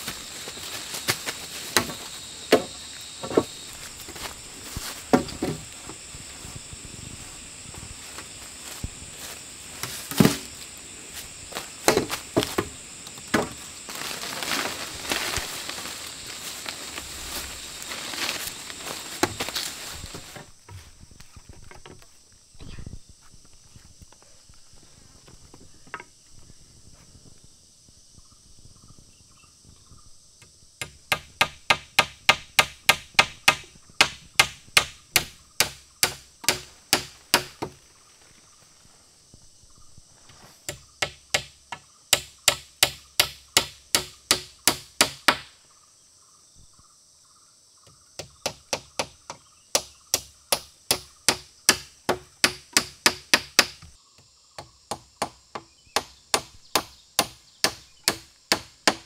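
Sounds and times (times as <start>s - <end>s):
high insect drone: 0.0s - 59.0s
tool striking wooden poles: 1.1s - 6.0s, 8.6s - 10.7s, 11.5s - 20.4s, 30.8s - 37.8s, 40.7s - 45.6s, 48.2s - 54.0s, 54.6s - 59.0s.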